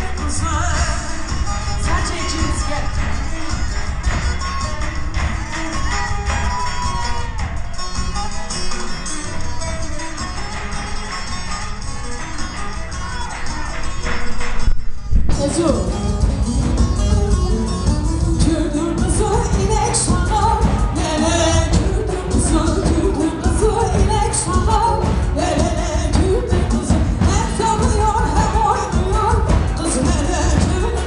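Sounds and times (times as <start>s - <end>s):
live band dance music: 0.0s - 31.0s
person singing: 18.2s - 31.0s.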